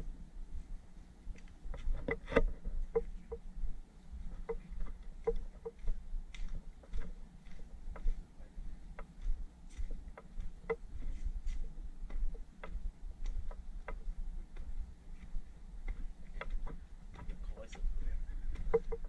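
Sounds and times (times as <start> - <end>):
footsteps on stone stairs: 8.9 - 17.9.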